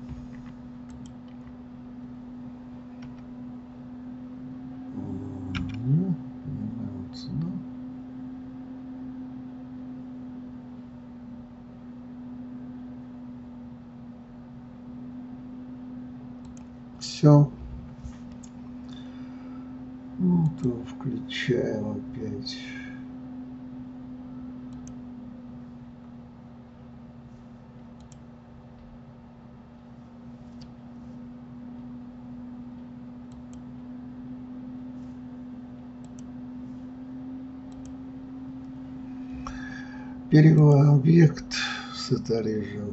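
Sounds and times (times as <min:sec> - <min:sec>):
computer mouse clicking: 0:00.0 - 0:01.6, 0:03.0 - 0:03.3, 0:05.4 - 0:05.9, 0:16.4 - 0:16.7, 0:24.7 - 0:25.0, 0:28.0 - 0:28.3, 0:30.5 - 0:30.8, 0:33.3 - 0:33.7, 0:36.0 - 0:36.3, 0:37.7 - 0:38.0
steady low hum: 0:00.0 - 0:42.9.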